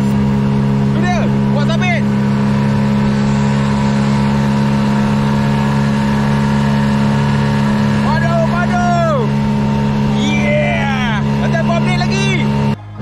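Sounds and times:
outboard motor running: 0:00.0 - 0:13.0
water rushing along hull: 0:00.0 - 0:13.0.

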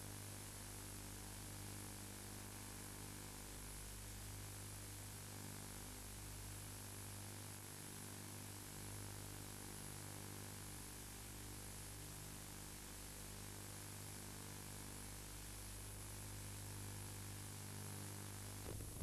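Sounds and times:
low electrical hum: 0:08.4 - 0:19.0
tape hiss: 0:18.2 - 0:19.0.

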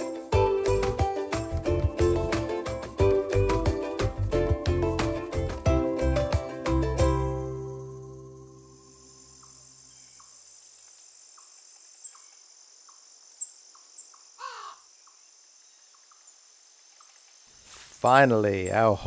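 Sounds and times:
background music: 0:00.0 - 0:09.2
insects trilling: 0:07.5 - 0:19.0.

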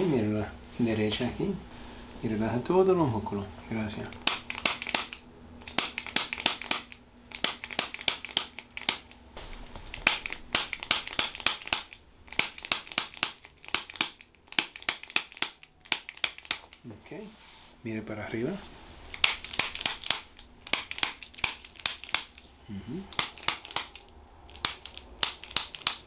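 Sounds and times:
adjusting instrument clicks: 0:04.1 - 0:09.2, 0:19.1 - 0:22.5, 0:23.1 - 0:26.0.

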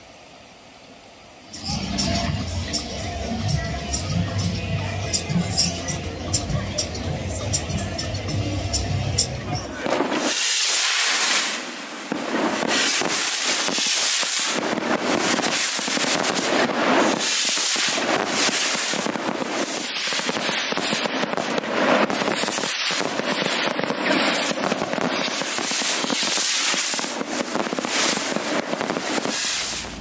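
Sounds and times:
stick rockets banging and crackling: 0:09.8 - 0:30.0.

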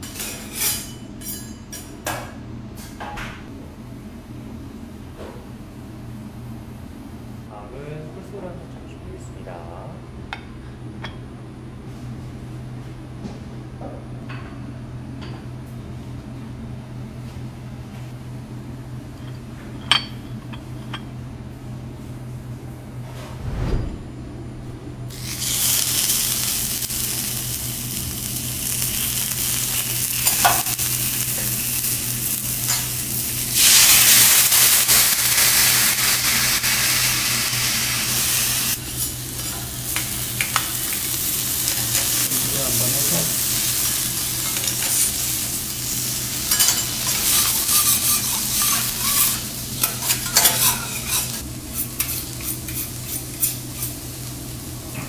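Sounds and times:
food sizzling on a griddle: 0:25.1 - 0:55.0
metal utensil clicks and scrapes: 0:46.5 - 0:53.9.

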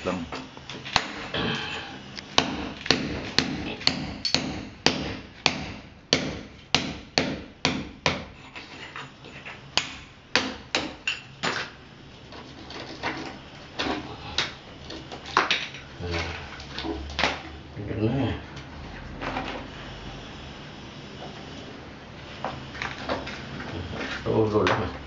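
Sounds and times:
hammer chipping at concrete wall: 0:02.4 - 0:08.4, 0:09.8 - 0:11.0.

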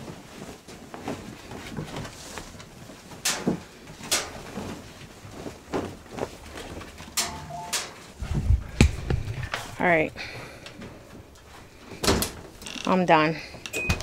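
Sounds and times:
soft rustling and handling: 0:00.0 - 0:07.2.

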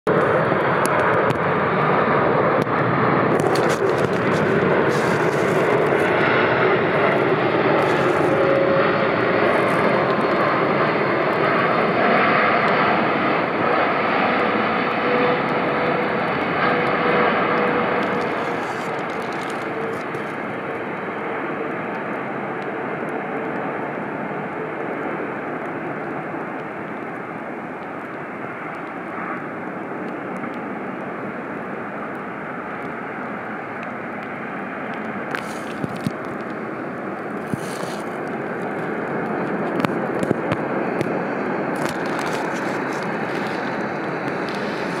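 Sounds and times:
jet engines roaring: 0:00.1 - 0:45.0.

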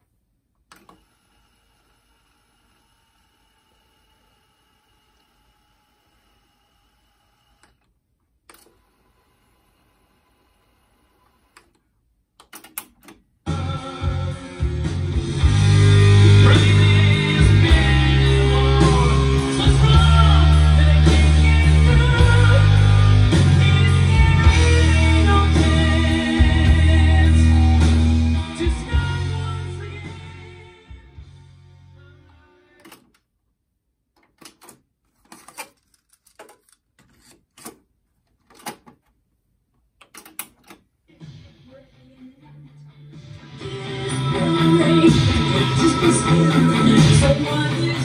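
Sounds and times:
rock music with guitar: 0:13.5 - 0:32.8, 0:41.1 - 0:48.0
plastic clicks and clunks: 0:34.1 - 0:39.2, 0:40.0 - 0:40.9.

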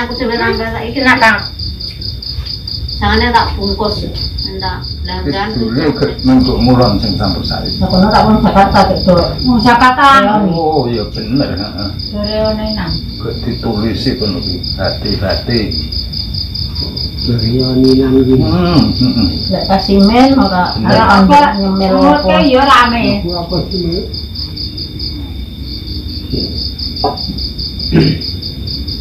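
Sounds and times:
people talking: 0:00.0 - 0:01.6, 0:03.0 - 0:15.9, 0:16.8 - 0:24.2, 0:26.3 - 0:26.6, 0:28.0 - 0:28.2
crickets chirping: 0:00.0 - 0:29.0.

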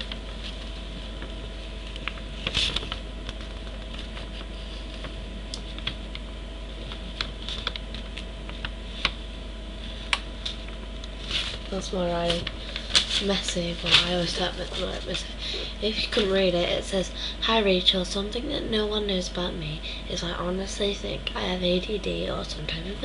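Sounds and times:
low electrical hum: 0:00.0 - 0:23.0
paper rustle: 0:02.4 - 0:05.1, 0:11.2 - 0:15.3.

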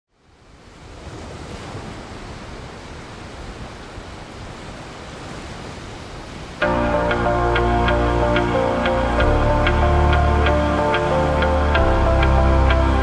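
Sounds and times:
ocean surf washing in: 0:00.4 - 0:13.0
loud music: 0:06.6 - 0:13.0.

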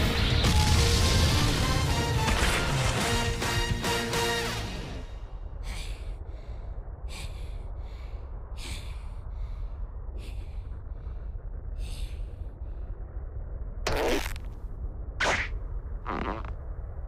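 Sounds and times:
steady low rumble: 0:05.0 - 0:17.0
heavy laboured breathing: 0:05.5 - 0:13.3.

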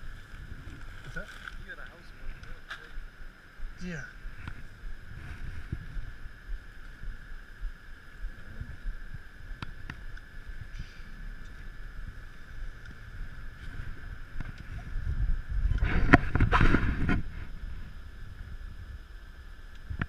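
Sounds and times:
steady high hum: 0:00.0 - 0:20.0
wind rumble on microphone: 0:00.0 - 0:20.0
water against hull: 0:13.4 - 0:18.6.

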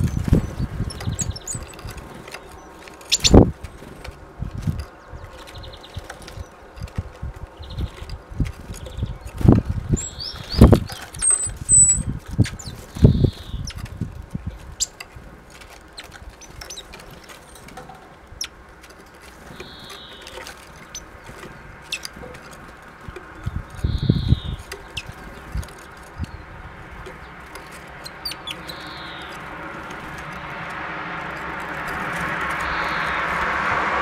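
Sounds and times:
beaks pecking at peanuts: 0:00.0 - 0:33.5
bird wingbeats fluttering: 0:00.0 - 0:34.0.

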